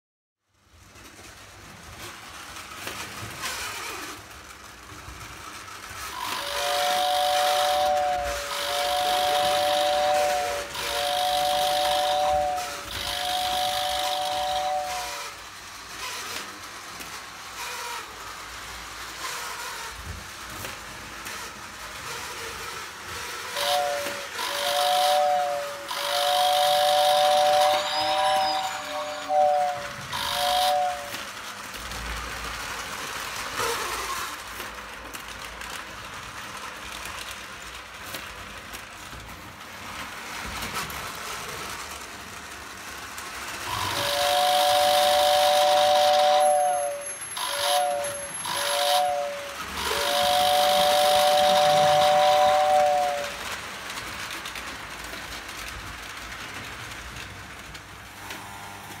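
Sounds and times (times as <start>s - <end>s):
toy trains running on track: 0.5s - 59.0s
two-tone toy train whistle: 6.0s - 16.5s, 21.2s - 31.5s, 43.6s - 54.0s.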